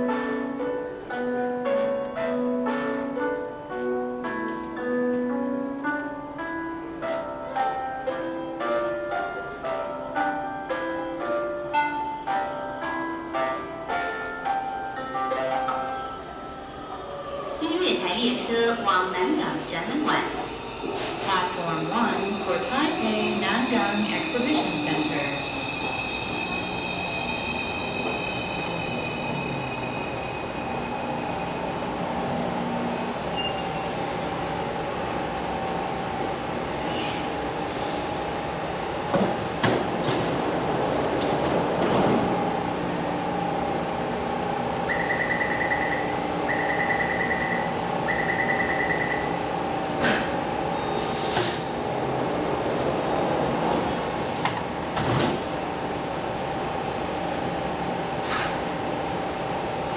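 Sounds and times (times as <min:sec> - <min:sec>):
steady train hum: 0:00.0 - 0:59.9
brake and wheel squeals: 0:24.6 - 0:35.0, 0:35.7 - 0:37.9
door warning beeps: 0:44.9 - 0:49.4.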